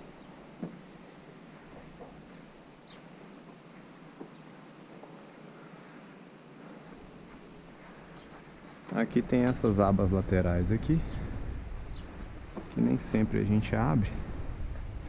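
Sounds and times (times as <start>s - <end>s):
faint bird chirps: 0.0s - 8.7s, 10.6s - 12.4s
steady low hiss: 0.0s - 15.0s.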